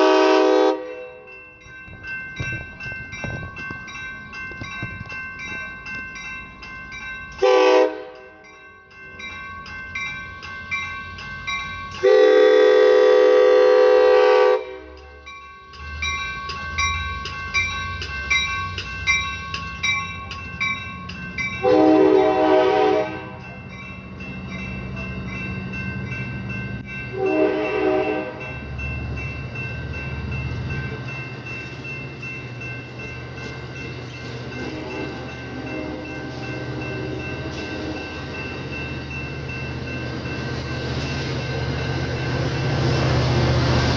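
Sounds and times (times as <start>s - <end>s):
train horn blasts: 0.0s - 1.2s, 7.4s - 8.2s, 12.0s - 15.1s, 21.6s - 23.4s, 27.1s - 28.5s, 34.6s - 38.2s
crossing bell ringing: 0.0s - 43.9s
rumble of passing train cars: 0.0s - 43.9s.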